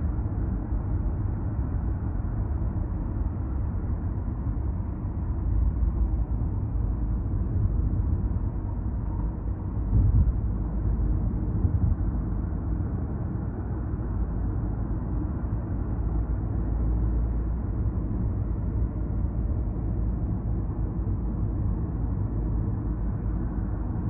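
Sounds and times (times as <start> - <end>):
car road rumble from inside: 0.0 - 13.5.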